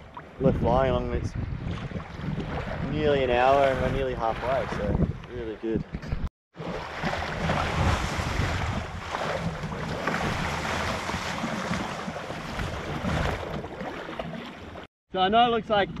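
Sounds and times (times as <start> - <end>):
choppy sea rushing: 0.0 - 16.0
wind buffeting microphone: 0.3 - 6.3, 7.0 - 13.9
waves slapping against kayak: 1.4 - 14.9.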